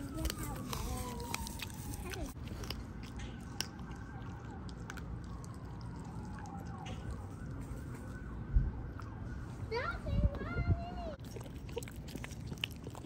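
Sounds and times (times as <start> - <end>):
dog crunching on bones: 0.0 - 8.3, 11.2 - 13.0
faint siren wailing: 0.0 - 11.2.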